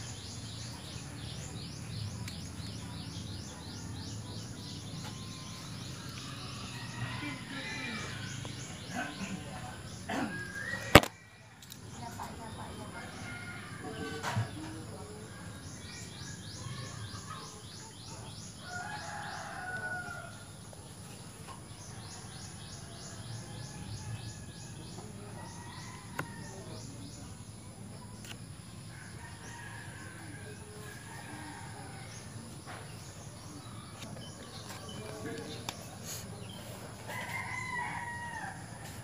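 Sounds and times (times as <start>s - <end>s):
rooster crowing: 5.5s - 9.2s, 18.6s - 20.4s, 37.1s - 39.0s.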